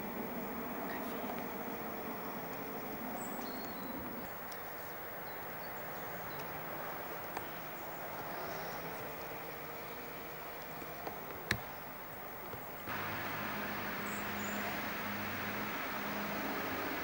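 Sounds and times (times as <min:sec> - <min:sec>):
street background hush: 0:10.8 - 0:17.0
high bird chirps: 0:12.9 - 0:17.0.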